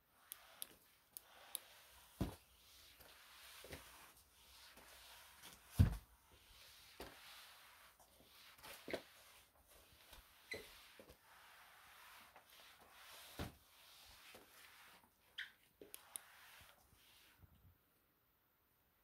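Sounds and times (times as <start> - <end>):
mop pad swishing on floor: 0.2 - 17.6
mop head squeaks: 10.4 - 10.8.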